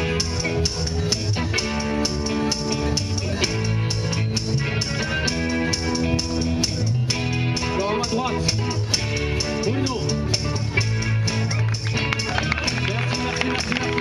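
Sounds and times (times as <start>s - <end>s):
blues-rock band playing: 0.0s - 14.0s.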